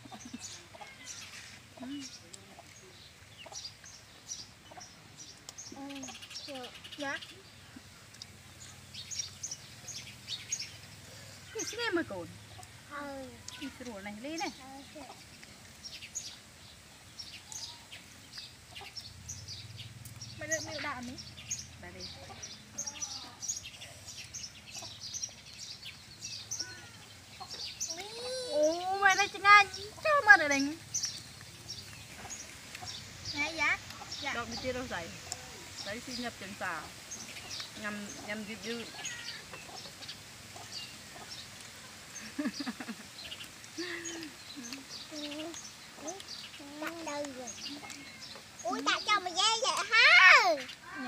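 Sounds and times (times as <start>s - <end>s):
birds chirping: 0.0s - 51.0s
chickens clucking: 19.8s - 22.8s, 27.2s - 35.9s, 37.1s - 49.1s.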